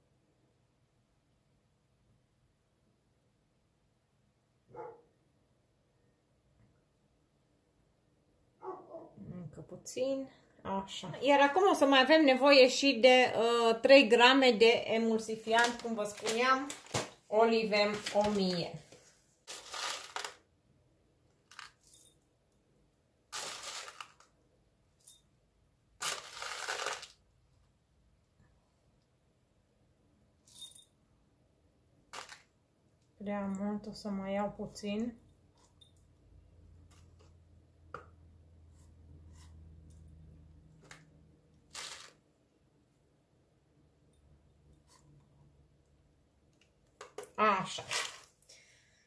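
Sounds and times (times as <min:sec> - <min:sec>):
packaging rustling and crinkling: 0:15.5 - 0:20.4, 0:23.4 - 0:24.3, 0:26.0 - 0:27.2, 0:41.7 - 0:42.2, 0:47.8 - 0:48.4
pellets shifting in packet: 0:19.5 - 0:20.4, 0:21.4 - 0:21.9, 0:23.3 - 0:24.3, 0:26.0 - 0:27.2, 0:32.1 - 0:32.5, 0:41.7 - 0:42.2, 0:47.7 - 0:48.4.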